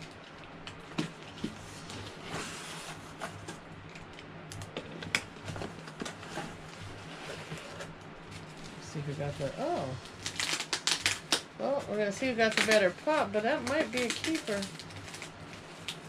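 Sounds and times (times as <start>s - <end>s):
fingers picking at packing tape: 10.2s - 16.0s.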